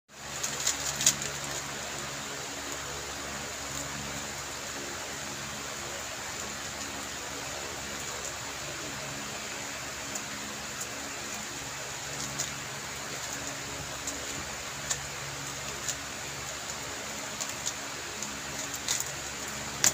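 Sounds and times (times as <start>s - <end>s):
room noise hiss: 0.1s - 19.9s.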